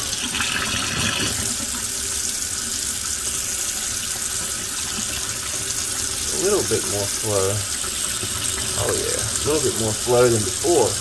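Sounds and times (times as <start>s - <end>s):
faucet water splashing: 0.0s - 11.0s.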